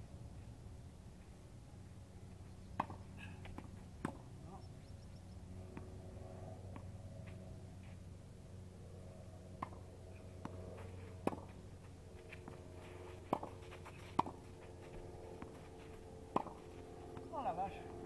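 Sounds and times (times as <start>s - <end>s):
faint steady hum: 0.0s - 18.0s
tennis ball bouncing on clay: 2.7s - 4.5s, 9.6s - 17.9s
tennis ball struck by rackets: 2.8s - 4.3s, 9.6s - 11.6s, 13.2s - 17.3s.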